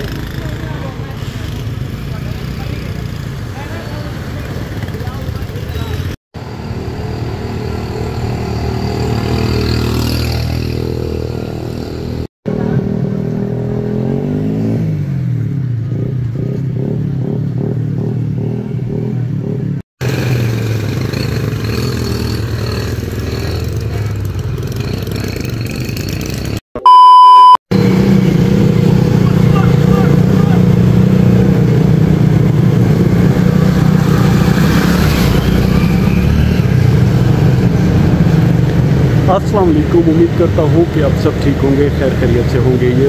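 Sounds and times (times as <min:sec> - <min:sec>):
vehicle engines running: 0:00.0 - 0:12.9, 0:15.6 - 0:26.6, 0:27.7 - 0:43.0
loud electronic beep: 0:26.8 - 0:27.6
engine revving up: 0:27.7 - 0:43.0.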